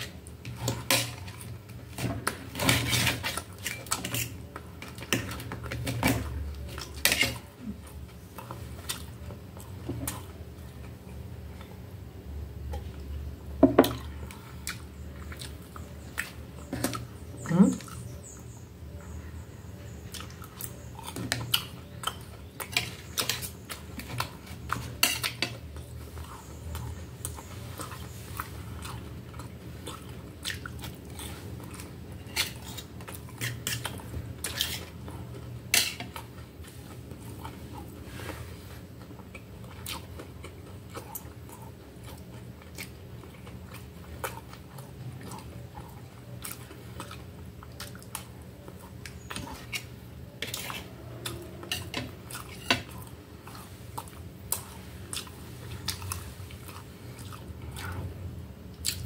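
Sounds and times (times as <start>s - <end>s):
person chewing: 13.9s - 18.1s, 20.1s - 58.0s, 58.7s - 59.0s
cutlery clinking on metal plate: 24.8s - 25.6s.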